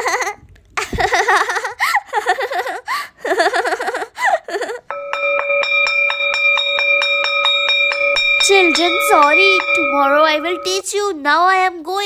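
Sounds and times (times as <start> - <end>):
high-pitched laughter: 0.0 - 4.9.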